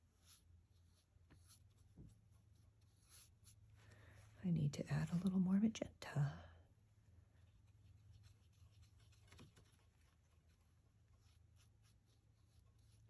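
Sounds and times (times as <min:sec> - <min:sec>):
paintbrush strokes on paper: 0:00.0 - 0:05.5, 0:07.3 - 0:13.0
low steady hum: 0:00.0 - 0:13.0.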